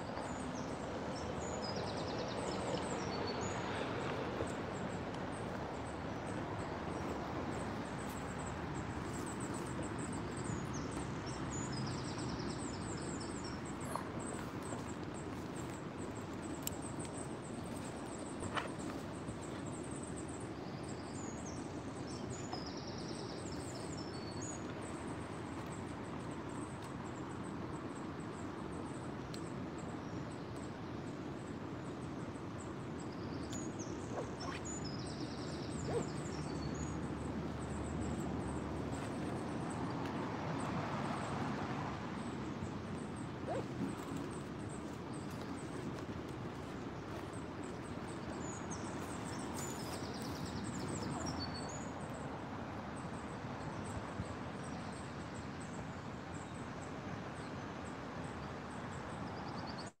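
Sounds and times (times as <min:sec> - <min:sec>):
birds calling: 0:33.6 - 0:39.7, 0:42.9 - 0:51.9.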